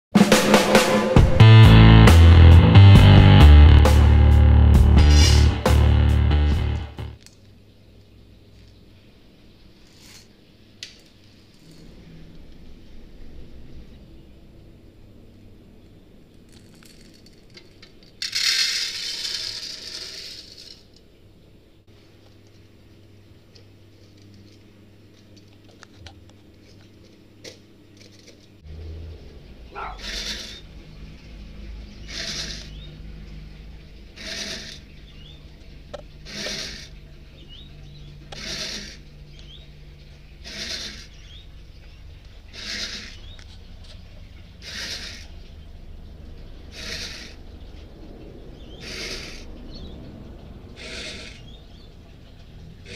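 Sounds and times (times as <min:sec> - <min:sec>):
steady low hum: 0:01.2 - 0:07.3
coffee beans pouring into a pan: 0:18.2 - 0:20.8.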